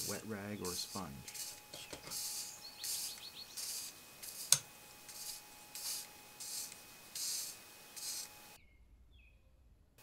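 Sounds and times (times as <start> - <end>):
soldering iron sizzling on wet sponge: 0.0 - 8.6.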